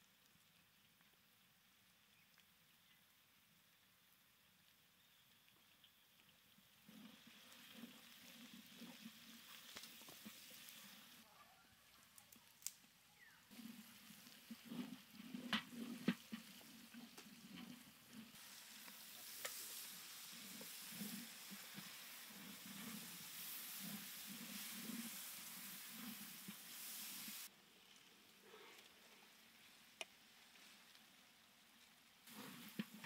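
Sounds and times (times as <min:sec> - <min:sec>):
food sizzling in oil: 0:07.0 - 0:11.2, 0:13.5 - 0:27.5.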